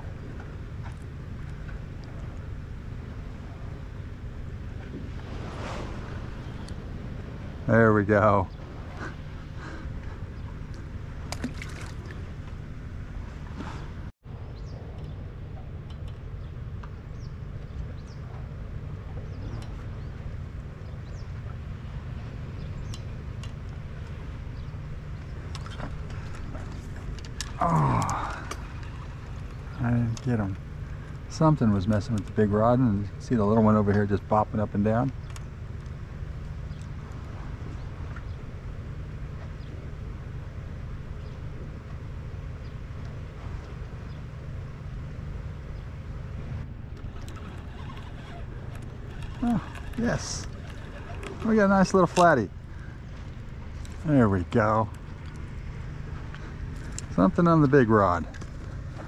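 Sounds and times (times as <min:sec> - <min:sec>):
low outdoor rumble: 0:00.0 - 0:59.0
wind buffeting microphone: 0:45.8 - 0:57.2
fishing rods clicking and tapping: 0:46.9 - 0:52.4.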